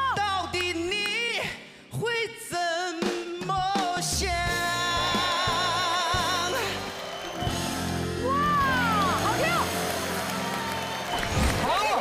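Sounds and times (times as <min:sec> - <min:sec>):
person singing pop song: 0:00.0 - 0:07.1
band accompaniment: 0:02.9 - 0:12.0.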